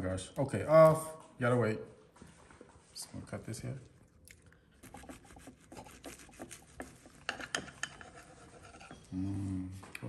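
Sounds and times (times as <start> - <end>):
knife sawing through hamburger: 4.8 - 7.2, 8.0 - 9.1.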